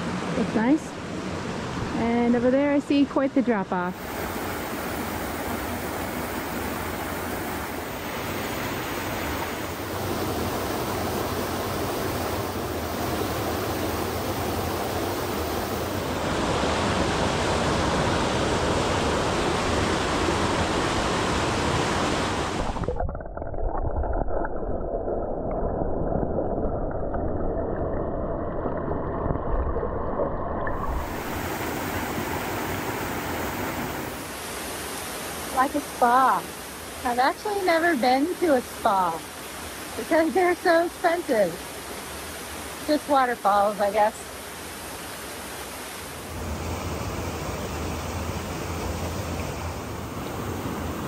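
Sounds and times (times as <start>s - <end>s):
waterfall rushing: 30.8s - 51.0s.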